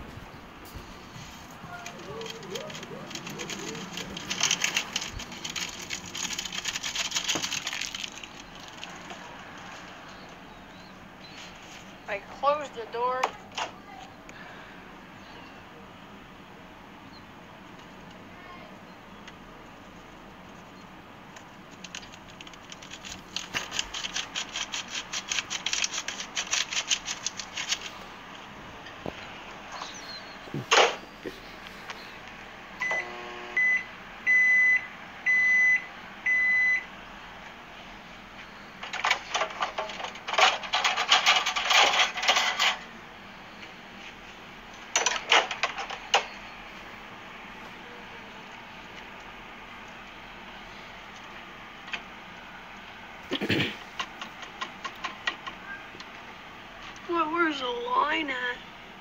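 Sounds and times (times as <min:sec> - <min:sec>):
plastic packet crinkling: 0:00.8 - 0:10.0, 0:21.7 - 0:28.1
seasoning pattering into paper cup: 0:01.2 - 0:10.0, 0:21.6 - 0:28.0.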